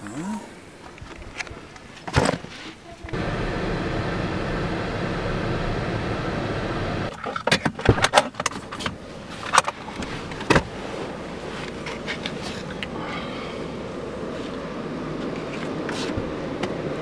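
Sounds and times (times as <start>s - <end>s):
car road noise: 3.1s - 7.1s.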